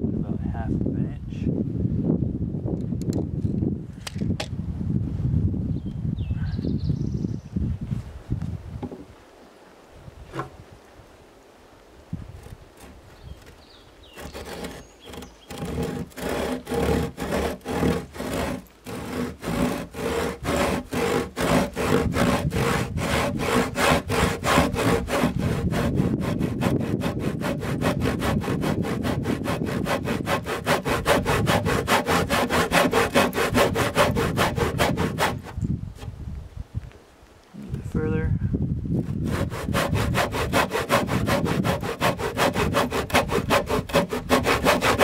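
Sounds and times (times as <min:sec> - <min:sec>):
handsaw cutting timber: 0:12.4 - 0:35.6, 0:39.0 - 0:45.0.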